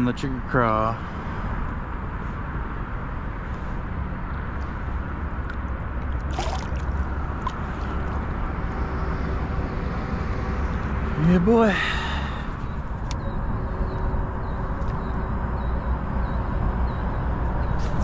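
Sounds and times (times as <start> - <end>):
steady low rumble: 0.0 - 18.0
water sloshing and gurgling: 3.5 - 11.1.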